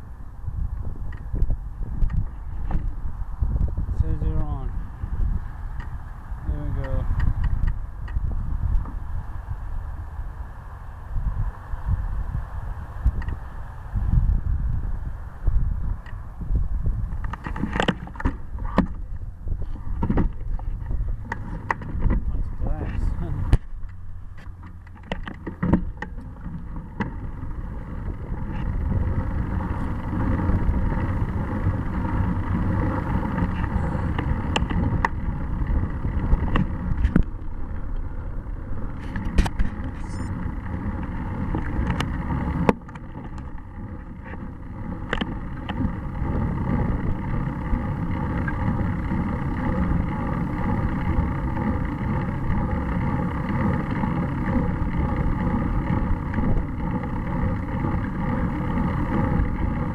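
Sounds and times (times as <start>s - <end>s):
bicycle tyres rumbling on asphalt: 0.0s - 59.9s
wind on microphone: 0.0s - 59.9s
sharp clicks and knocks: 6.8s - 9.0s, 17.1s - 28.8s, 33.3s - 35.3s, 36.1s - 38.1s, 39.0s - 46.6s.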